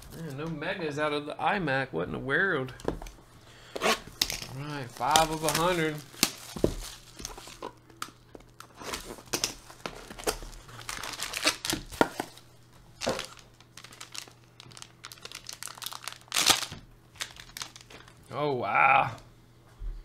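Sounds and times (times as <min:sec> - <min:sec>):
cardboard and plastic crinkling: 0:04.0 - 0:18.2.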